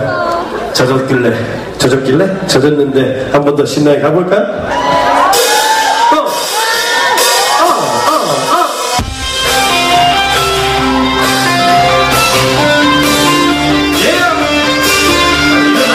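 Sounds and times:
crowd cheering: 4.6s - 15.9s
live rock band playing: 5.0s - 15.9s.

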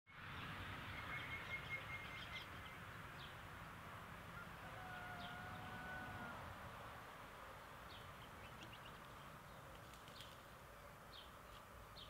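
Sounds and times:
outdoor background noise: 0.1s - 12.0s
birds chirping and calling: 0.9s - 3.4s, 7.5s - 12.0s.

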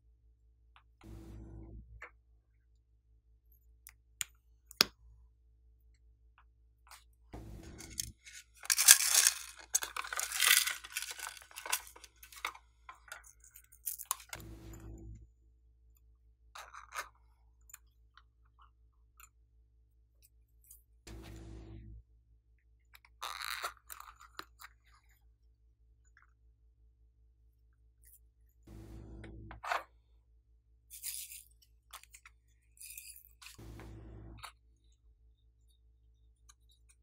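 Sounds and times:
plastic case crunching and rustling: 7.8s - 12.5s.

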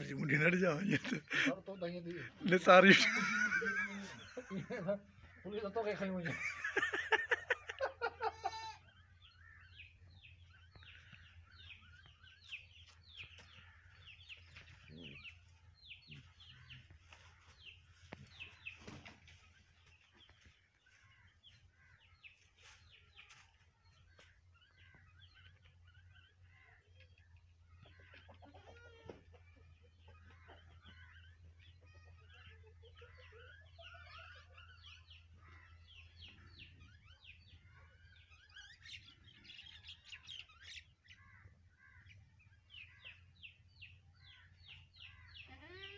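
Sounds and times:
chickens chirping and clucking: 9.0s - 45.5s.

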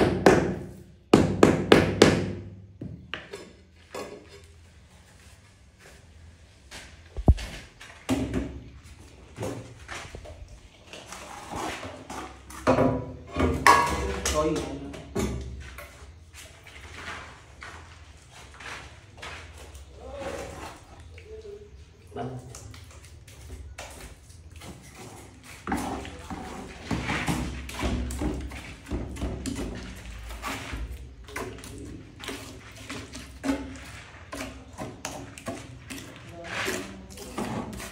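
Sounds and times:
trowel scraping and slapping mortar: 6.9s - 12.7s, 13.4s - 21.1s, 22.4s - 37.9s.

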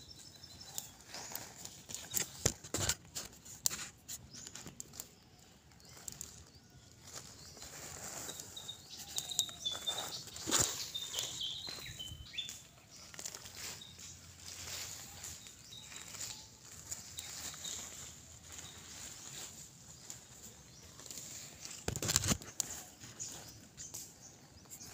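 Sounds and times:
footsteps on dry leaves: 0.1s - 24.9s
faint high-pitched chirps: 4.2s - 21.8s.

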